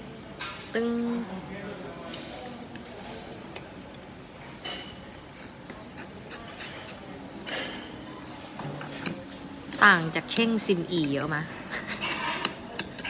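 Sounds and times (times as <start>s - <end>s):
spoon clinking against glass: 12.0s - 13.0s.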